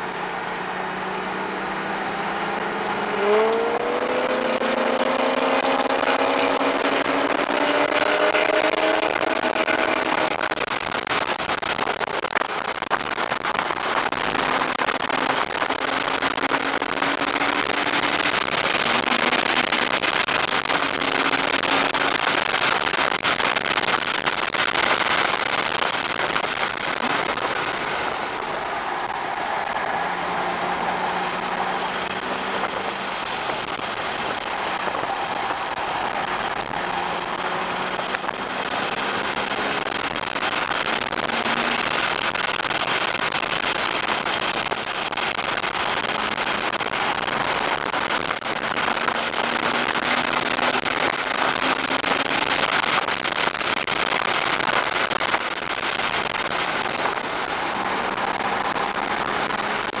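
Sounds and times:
car engine revving through gears: 0.0 - 10.9, 13.9 - 22.6, 25.7 - 42.3, 45.4 - 52.5, 56.8 - 60.0
road and wind noise: 0.0 - 60.0.

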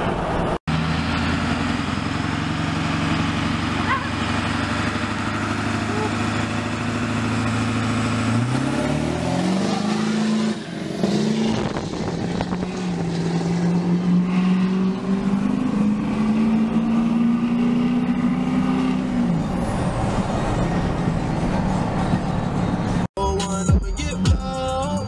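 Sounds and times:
pickup truck engine pulling away: 0.2 - 23.1.

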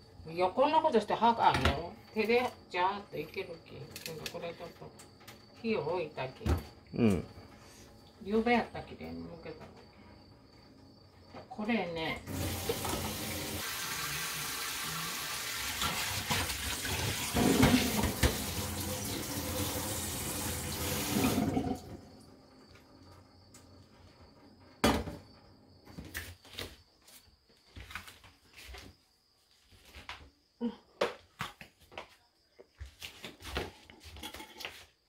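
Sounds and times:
tap running into a sink: 12.3 - 21.9.

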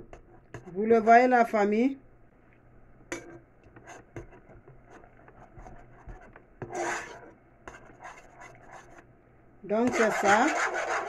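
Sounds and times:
spoon scraping paste in saucepan: 0.0 - 0.8, 3.1 - 9.1, 9.8 - 11.0.

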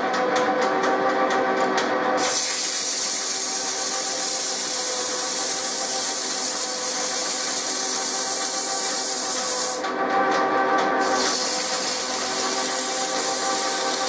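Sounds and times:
lathe running hum: 0.0 - 14.0
abrasive cloth rasping on shaft: 2.2 - 9.8, 11.0 - 14.0.

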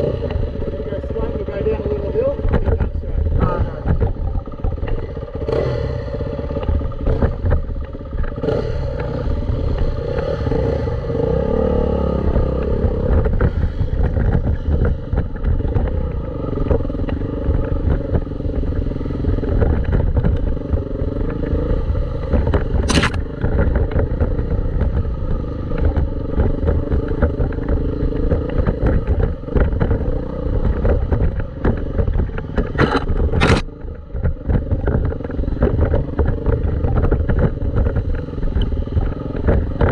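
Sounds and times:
dirt bike engine revving: 3.3 - 33.7.

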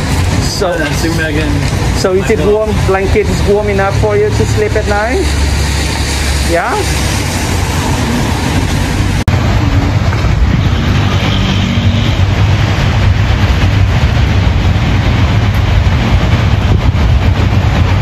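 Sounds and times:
city street traffic rumble: 0.0 - 18.0.

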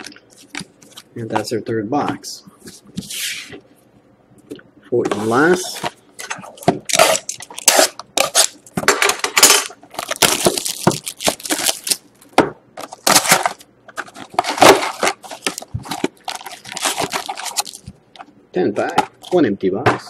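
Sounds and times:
plastic shrink wrap crinkling and tearing: 6.9 - 8.7, 9.4 - 17.9.

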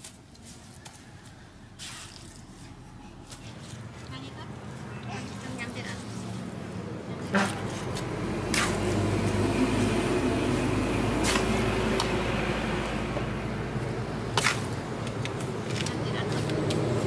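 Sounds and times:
trowel scraping wet cement: 7.4 - 9.0, 11.2 - 11.6.

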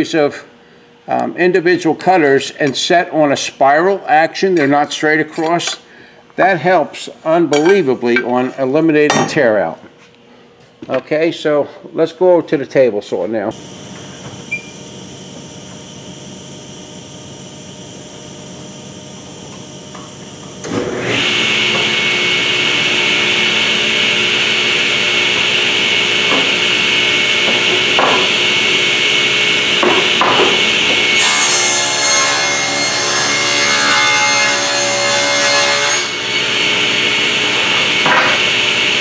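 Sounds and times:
table saw whining: 13.5 - 39.0.

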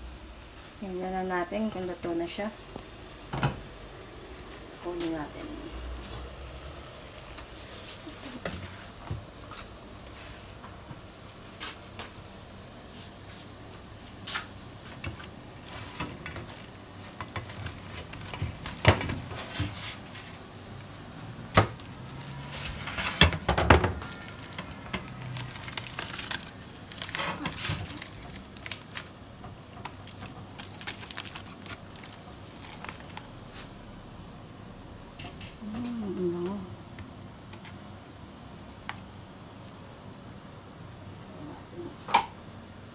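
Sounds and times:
aluminium foil crinkling: 14.3 - 20.5, 22.6 - 33.8.

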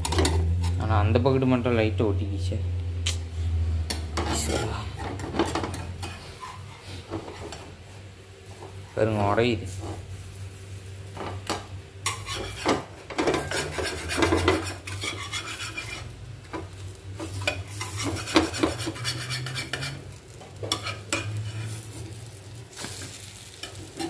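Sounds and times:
metal spatula scraping a griddle: 0.0 - 0.9, 4.2 - 7.8, 12.0 - 24.0
sizzling: 3.2 - 24.0.

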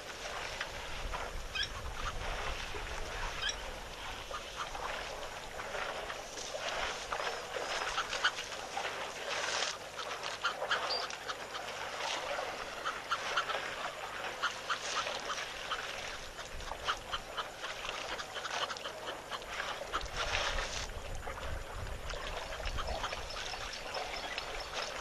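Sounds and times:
ducks and geese calling: 3.2 - 5.2, 6.6 - 8.4, 10.0 - 20.4.

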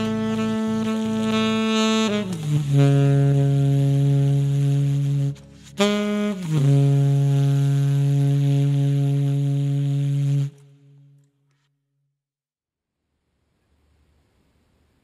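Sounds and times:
low held wind instrument notes: 0.0 - 11.5.

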